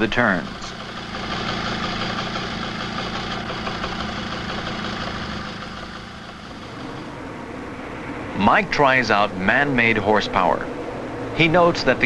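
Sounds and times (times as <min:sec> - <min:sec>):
moped engine running: 0:00.0 - 0:07.4.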